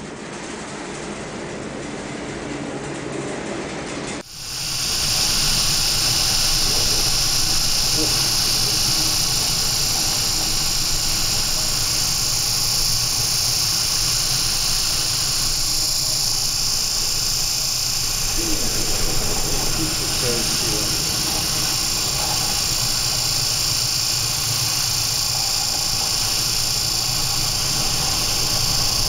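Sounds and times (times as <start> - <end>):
faint voices: 5.0 - 12.6, 18.1 - 23.8.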